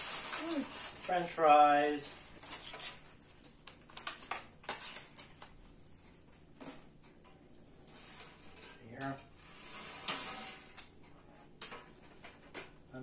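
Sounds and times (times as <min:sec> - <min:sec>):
paper bag rustling: 0:00.0 - 0:03.2.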